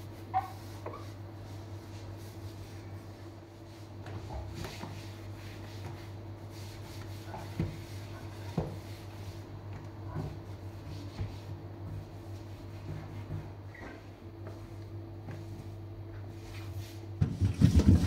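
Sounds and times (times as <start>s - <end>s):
cloth wiping glass cooktop: 0.0s - 9.5s
steady low hum: 0.0s - 18.0s.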